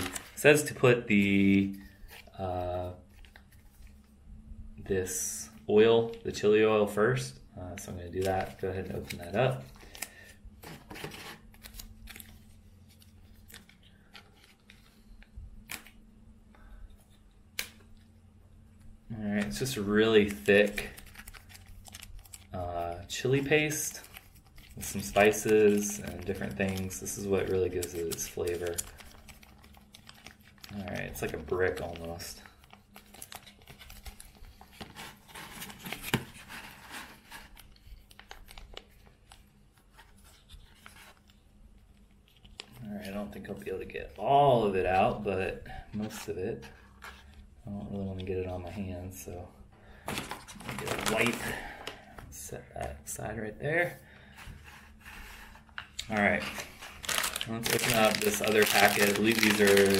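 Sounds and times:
plastic sachet crinkling: 19.4 - 45.5, 50.0 - 52.0, 55.8 - 59.9.

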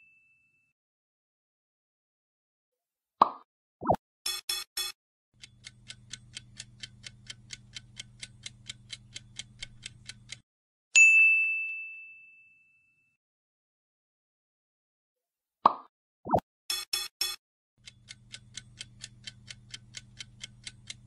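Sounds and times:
clock ticking: 4.3 - 10.4, 16.7 - 21.0
bright bell ding: 11.0 - 13.1.

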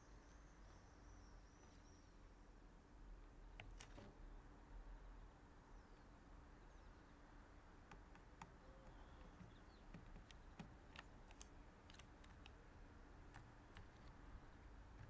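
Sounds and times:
low steady hiss: 0.0 - 15.0
bird feet and beaks tapping plastic: 3.5 - 4.2, 7.8 - 15.0.

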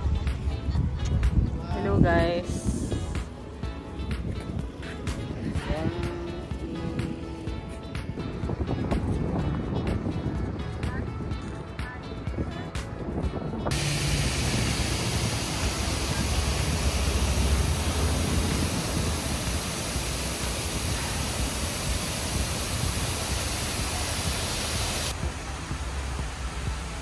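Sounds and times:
waterfall rushing: 13.7 - 27.0.

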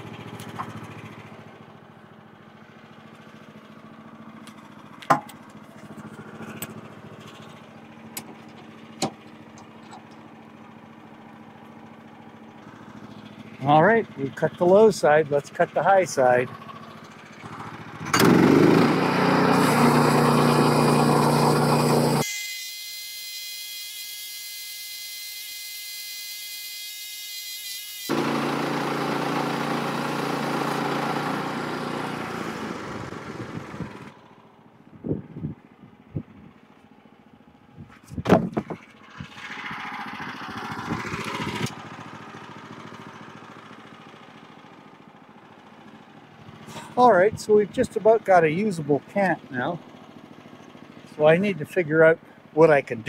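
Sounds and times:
bandsaw mill cutting a log: 0.0 - 1.8, 3.0 - 11.0, 12.7 - 34.2, 38.1 - 44.9.

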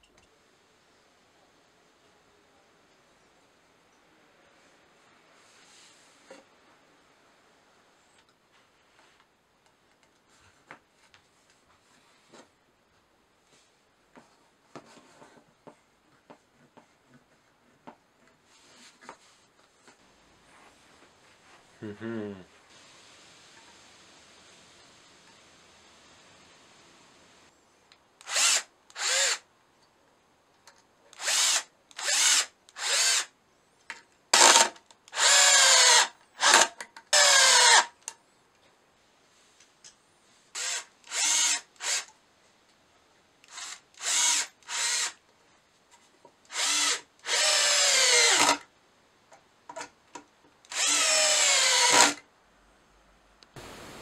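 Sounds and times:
cordless drill driving screws: 28.2 - 29.4, 31.2 - 33.3, 34.4 - 38.0, 40.6 - 42.1, 43.4 - 45.2, 46.5 - 48.6, 50.7 - 52.2.

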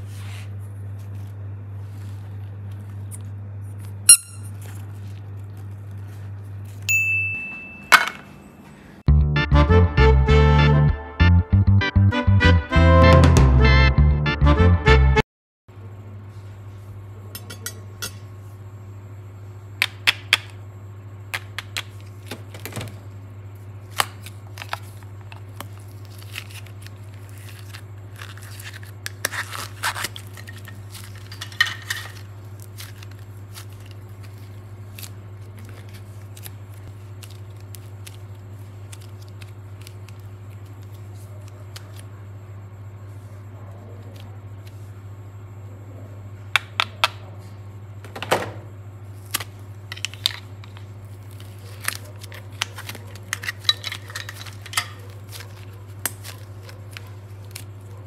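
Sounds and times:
low steady hum: 0.0 - 58.0
plastic crinkles and clicks: 23.8 - 42.1, 49.2 - 58.0
clay handling: 49.2 - 58.0.

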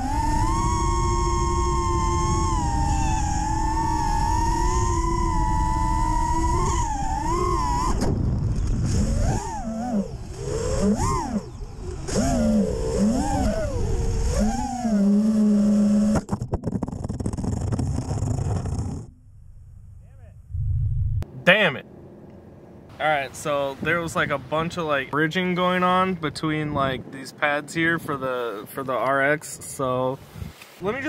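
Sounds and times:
low wind rumble: 0.0 - 14.9, 16.6 - 31.0
quadcopter motors whining: 0.0 - 16.4.

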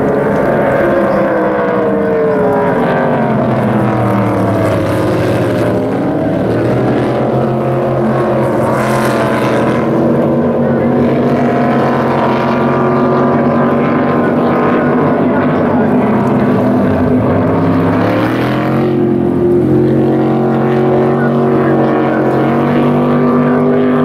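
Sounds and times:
race boat engines roaring: 0.0 - 24.0.

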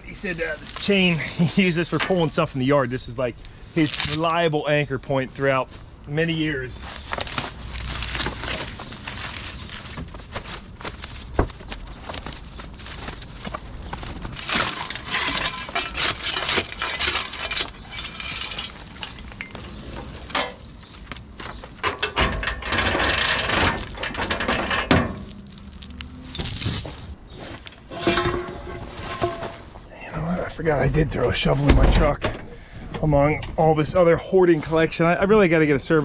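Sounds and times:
dry sticks snapping and rustling: 6.8 - 22.0, 25.1 - 27.1.

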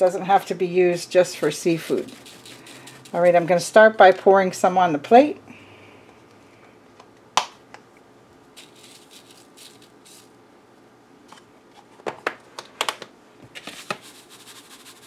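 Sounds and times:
spice grains hissing from tin: 1.2 - 3.8, 8.6 - 10.4, 13.7 - 15.0.

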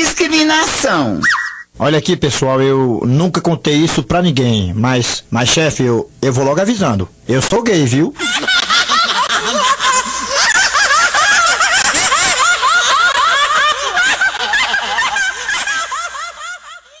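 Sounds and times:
people laughing: 8.2 - 17.0.

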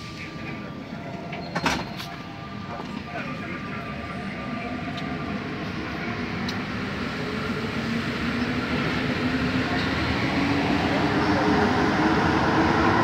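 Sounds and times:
train running through tunnel: 0.0 - 13.0.

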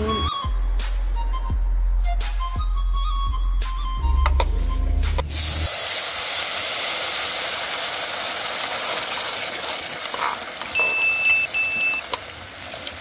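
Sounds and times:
rice sizzling in butter: 5.2 - 13.0.

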